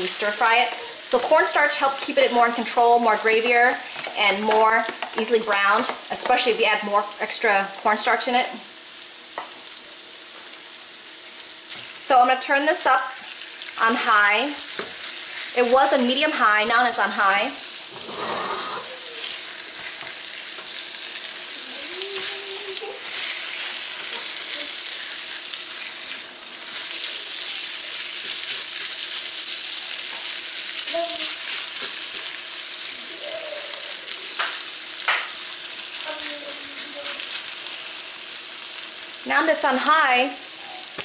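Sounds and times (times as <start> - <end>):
meat sizzling in a wok: 0.0 - 41.0
spatula scraping wok: 17.8 - 20.7.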